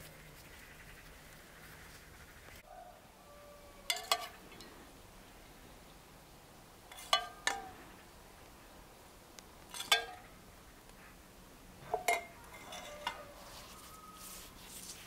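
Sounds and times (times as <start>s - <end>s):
metal spoon clinking on a pot: 3.9s - 4.3s, 6.9s - 7.7s, 9.7s - 10.2s, 11.9s - 13.2s.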